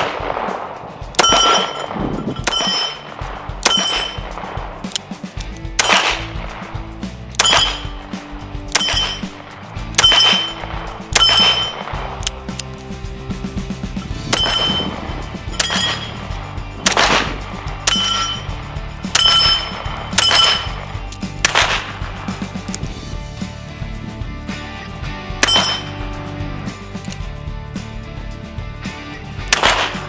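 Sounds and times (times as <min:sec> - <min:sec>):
handgun shots with metallic ring: 0:00.0 - 0:05.0, 0:05.8 - 0:06.4, 0:07.4 - 0:08.0, 0:08.7 - 0:12.3, 0:14.3 - 0:16.2, 0:16.8 - 0:18.5, 0:19.1 - 0:21.9, 0:25.4 - 0:25.9, 0:29.5 - 0:30.0
background music: 0:00.0 - 0:30.0.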